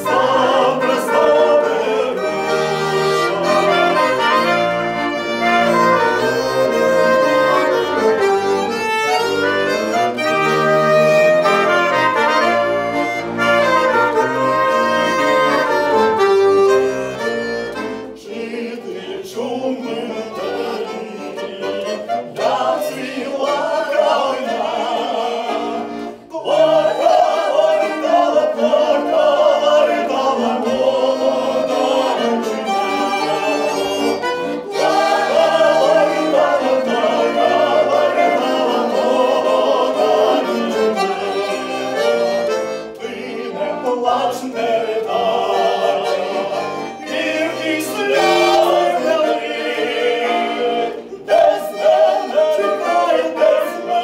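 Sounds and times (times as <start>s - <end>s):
man and woman singing: 0.0s - 2.7s, 18.2s - 42.0s, 42.9s - 54.0s
trumpet: 0.0s - 18.0s
saxophone: 0.0s - 18.4s, 19.9s - 54.0s
button accordion: 0.0s - 54.0s.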